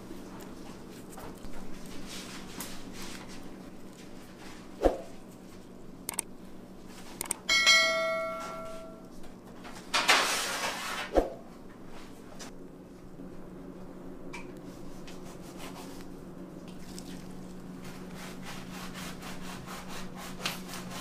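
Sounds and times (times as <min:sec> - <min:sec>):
low steady hum: 0:00.0 - 0:09.8, 0:11.4 - 0:20.8
bell-like ringing tone: 0:07.5 - 0:09.1.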